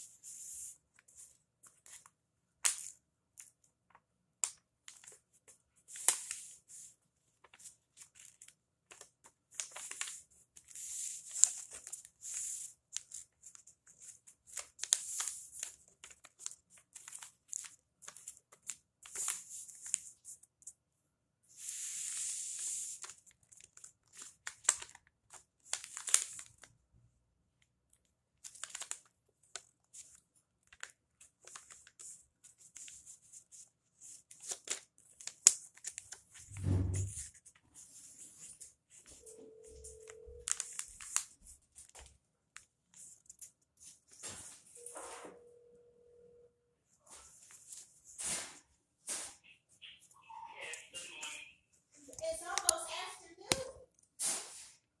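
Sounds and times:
paper rustling and crinkling: 1.0 - 20.7, 21.6 - 26.7, 28.4 - 44.8
paper sliding rub: 36.5 - 37.3.

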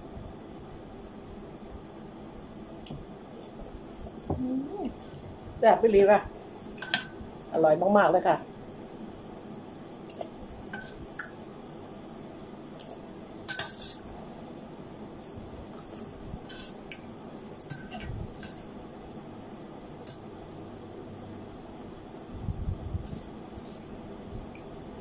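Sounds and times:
cutlery clinking on metal bowl: 10.1 - 11.0, 13.5 - 14.0, 17.6 - 18.6.

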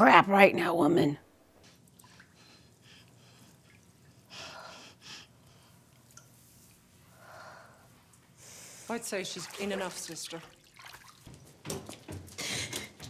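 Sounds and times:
water sloshing and dripping: 1.6 - 4.4, 5.4 - 7.0, 8.9 - 13.0.

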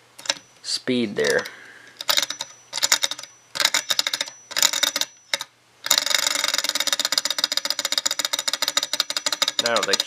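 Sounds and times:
model engine rapid ticking: 5.9 - 10.0.

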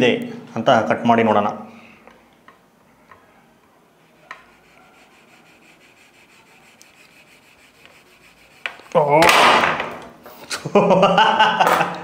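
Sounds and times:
knife rasping through chocolate: 4.1 - 9.0.

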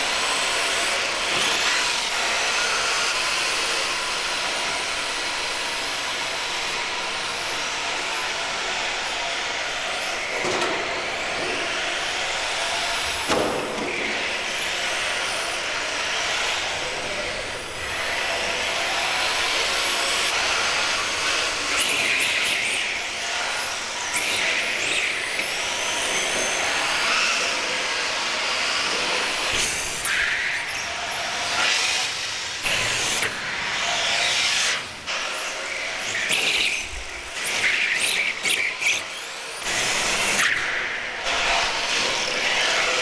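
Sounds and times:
model car motors whining: 14.2 - 43.0.

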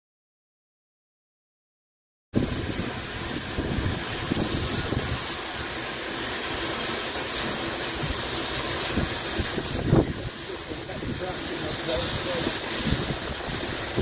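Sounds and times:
steam hissing: 2.4 - 14.0.

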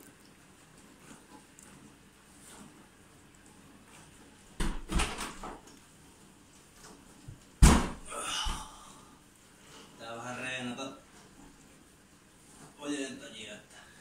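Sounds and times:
heavy thumps on floor: 7.3 - 8.7.

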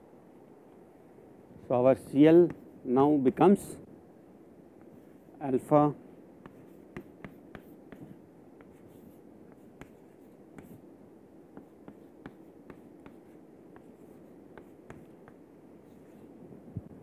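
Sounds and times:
low room hum: 0.0 - 17.0
chalk tapping and scraping: 2.4 - 3.4, 6.4 - 10.9, 11.5 - 16.3.

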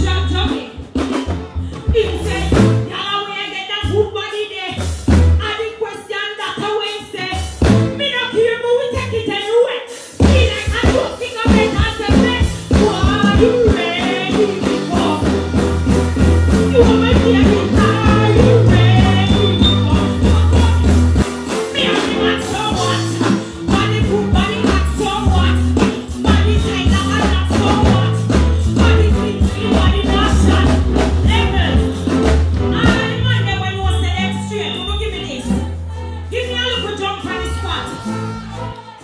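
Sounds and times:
backing track with heavy bass: 0.0 - 3.2, 3.8 - 5.6, 10.2 - 39.0
woman singing into a microphone: 5.4 - 15.6, 16.5 - 21.1, 21.7 - 31.8, 32.8 - 39.0.

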